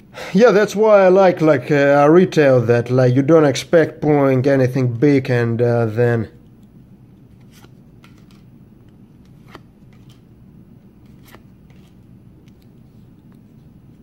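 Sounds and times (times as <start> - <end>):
cards flipped by hand: 7.2 - 10.3, 10.9 - 13.7.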